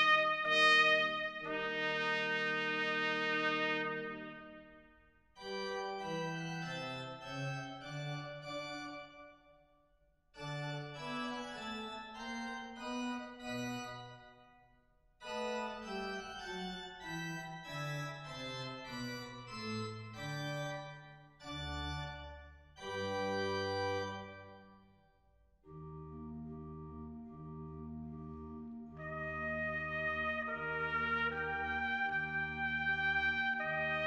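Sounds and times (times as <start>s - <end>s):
organ playing sustained chords: 5.4s - 9.3s, 15.4s - 24.6s, 25.7s - 34.0s.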